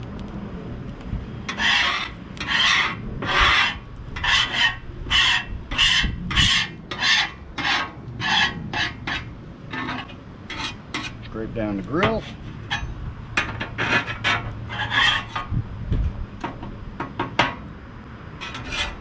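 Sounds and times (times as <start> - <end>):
metal spatula scraping griddle: 1.5 - 11.4, 12.0 - 15.5, 18.4 - 19.0.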